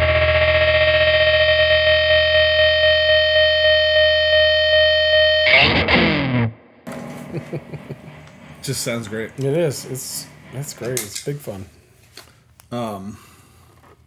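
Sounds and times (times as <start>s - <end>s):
distorted electric guitar tremolo chord: 0.0s - 11.0s
noisy guitar scrape falling pitch: 0.0s - 11.0s.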